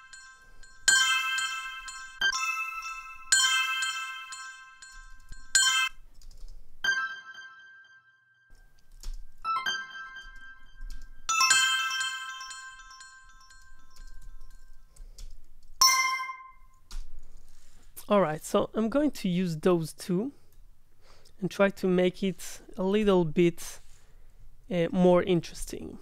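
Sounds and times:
synthesized bell chimes: 0.0 - 6.0, 9.5 - 14.9, 15.8 - 16.8.

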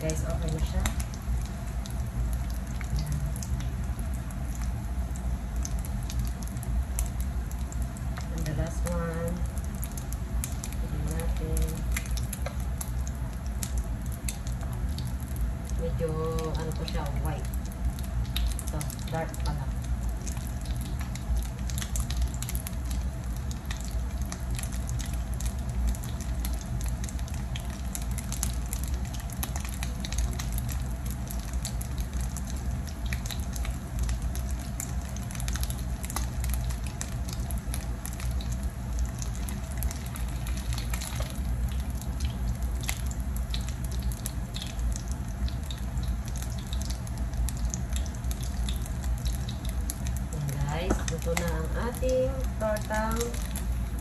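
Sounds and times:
low steady hum: 0.0 - 54.0
oil sizzling and popping: 0.0 - 54.0.

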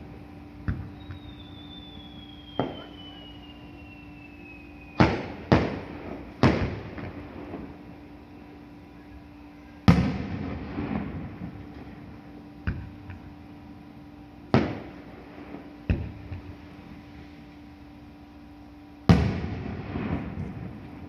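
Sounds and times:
faint steady hum: 0.0 - 21.0
fireworks bangs: 0.7 - 7.8, 9.9 - 12.0, 14.6 - 16.5, 19.1 - 21.0
falling firework whistle: 0.7 - 11.6.

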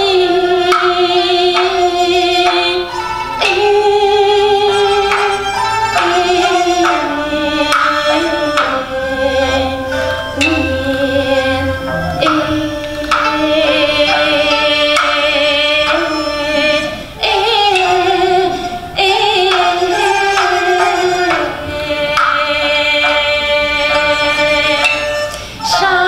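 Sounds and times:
bamboo flute: 0.0 - 26.0
woman singing with vibrato: 0.0 - 26.0
percussion clicks: 9.9 - 16.1.

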